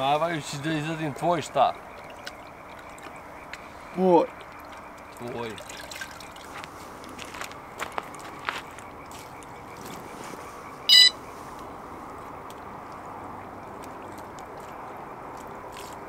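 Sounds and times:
high-pitched alarm beep: 0:10.9 - 0:11.2.

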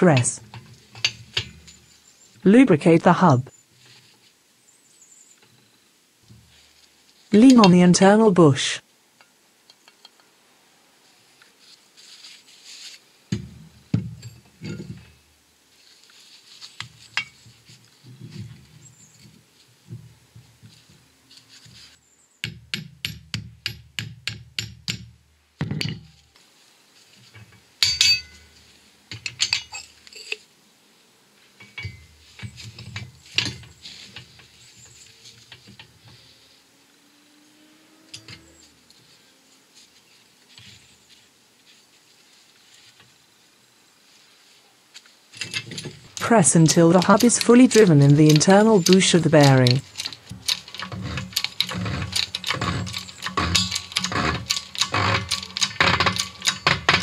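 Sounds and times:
metal parts clinking and knocking: 0:00.5 - 0:01.8, 0:27.4 - 0:30.4, 0:31.6 - 0:34.4, 0:45.4 - 0:57.0.

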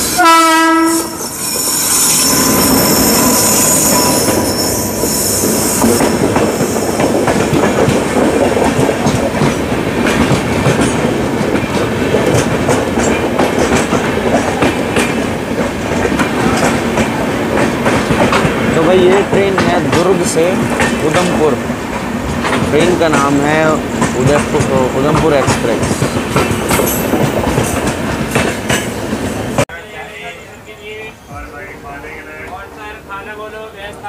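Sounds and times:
train horn blast: 0:00.0 - 0:05.6
train rumbling past: 0:00.0 - 0:34.0
high hiss: 0:00.9 - 0:07.0
wheels clacking over rail joints: 0:05.8 - 0:29.6.

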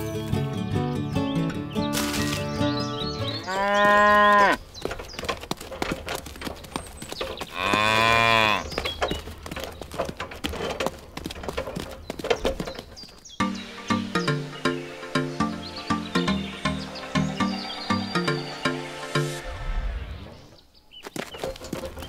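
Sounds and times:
cow mooing: 0:03.4 - 0:04.6, 0:07.5 - 0:08.7.

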